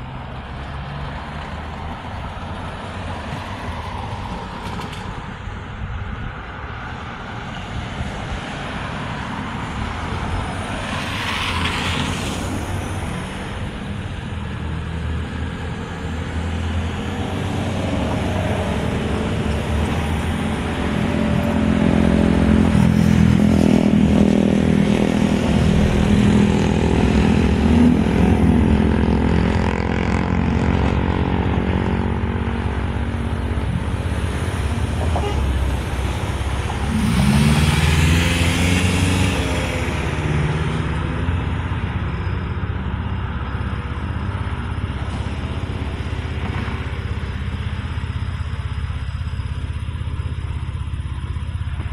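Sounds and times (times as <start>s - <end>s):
vehicles passing: 0.0s - 51.9s
engine pitch sweep: 16.9s - 51.9s.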